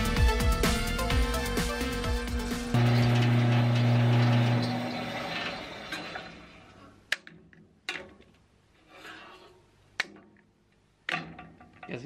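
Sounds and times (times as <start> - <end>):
bandsaw winding down: 1.4 - 6.6
bar clamps clacking: 11.0 - 12.0.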